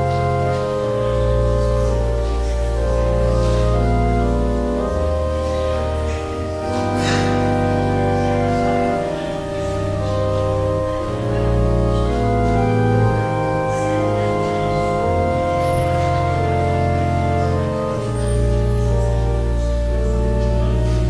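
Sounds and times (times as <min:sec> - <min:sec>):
church organ chords: 0:00.0 - 0:21.0.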